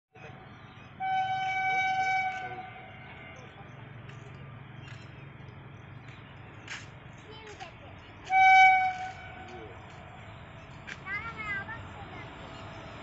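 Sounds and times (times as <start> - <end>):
train horn blast: 1.0 - 3.3, 8.2 - 9.6.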